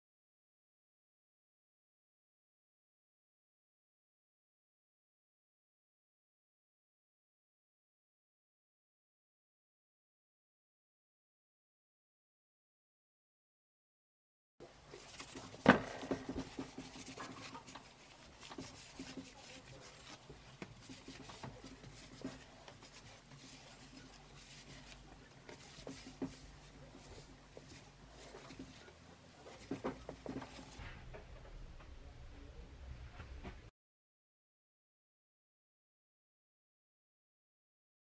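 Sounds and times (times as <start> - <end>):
cloth rubbing on metal: 14.6 - 30.9.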